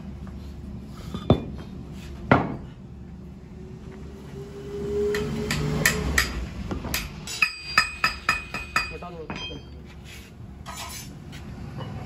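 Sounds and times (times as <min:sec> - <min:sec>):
sharp ringing metal strikes: 0:07.3 - 0:09.8.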